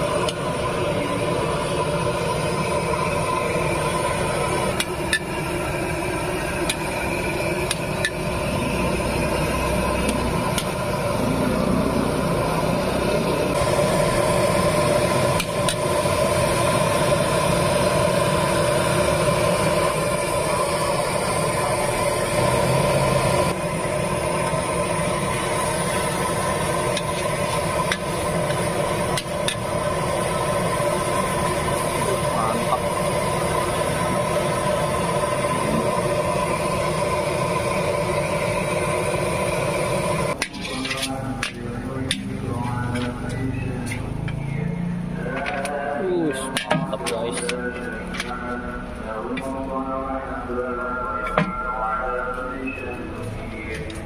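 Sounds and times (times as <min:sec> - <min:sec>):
metal spatula scraping a wok: 0:40.4 - 0:41.2.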